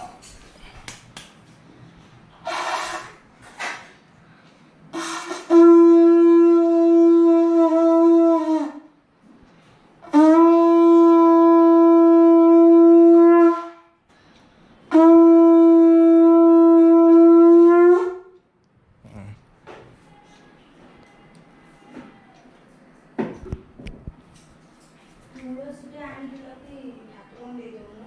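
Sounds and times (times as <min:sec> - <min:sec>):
conch shell blasts: 0:04.9 - 0:09.0, 0:10.0 - 0:14.0, 0:14.9 - 0:18.4.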